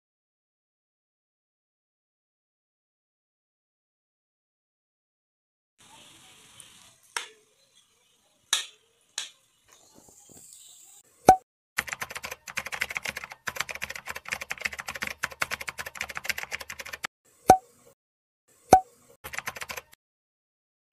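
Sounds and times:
rapid typing-like clicks: 11.8 - 17.1, 19.2 - 20.0.

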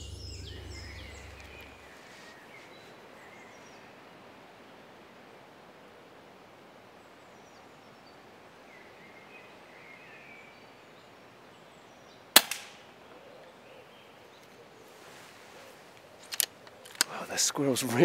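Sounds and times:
faint bird chirps: 0.0 - 4.0
air rifle shot: 12.4 - 12.8.

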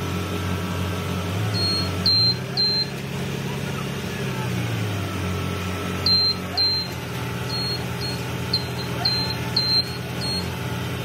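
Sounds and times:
engine running: 0.0 - 11.0
backup alarm beeps: 1.6 - 3.0, 6.1 - 10.5.

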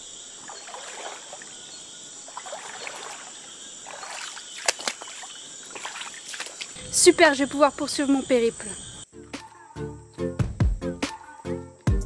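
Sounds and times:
water splashing: 0.0 - 7.7
insect chorus: 0.0 - 10.4
footsteps wading through water: 0.4 - 6.8.

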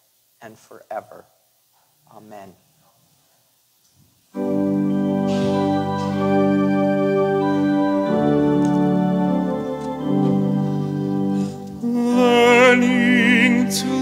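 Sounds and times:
church organ chords: 4.4 - 14.0.

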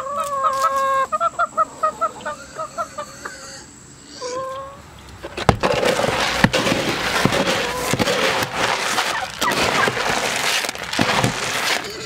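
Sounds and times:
plastic scoop digging pellets: 5.3 - 12.0
pellets rattling and pouring: 5.5 - 12.0.

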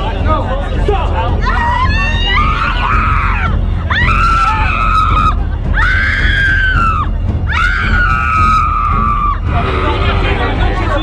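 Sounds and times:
woman screaming: 1.4 - 9.4.

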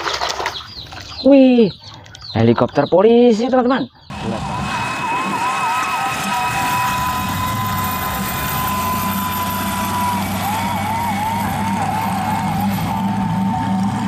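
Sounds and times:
electronic siren: 4.1 - 14.0
low engine hum: 4.1 - 14.0.

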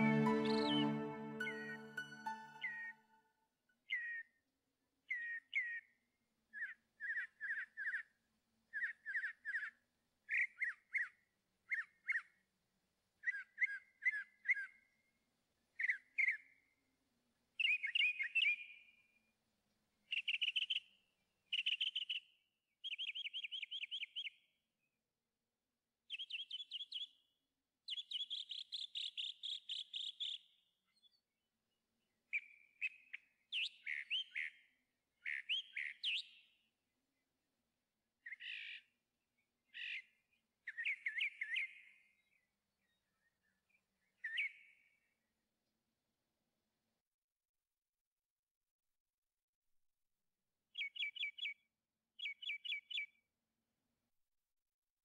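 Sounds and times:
bird chirping: 27.9 - 31.2, 35.2 - 36.6, 50.8 - 51.6, 52.2 - 53.2.

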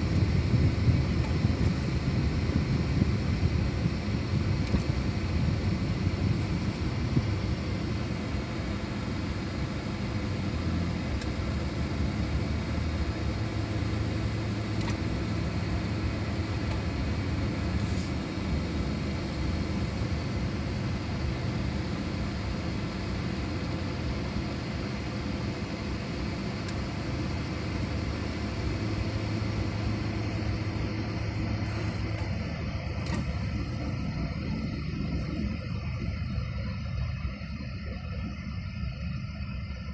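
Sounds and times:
road noise hiss: 0.0 - 39.9
vehicle engine hum: 0.0 - 39.9.

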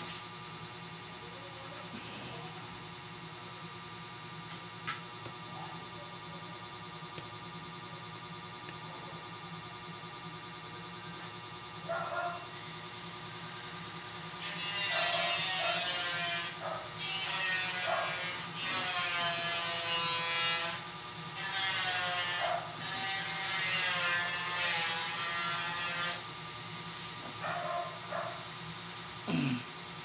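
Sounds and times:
steady low hum: 0.0 - 30.0
small motor whirring: 12.5 - 30.0.

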